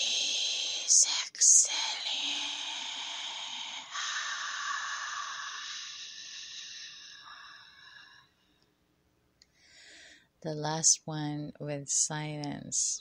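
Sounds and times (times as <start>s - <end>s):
person breathing out slowly: 1.7s - 8.4s.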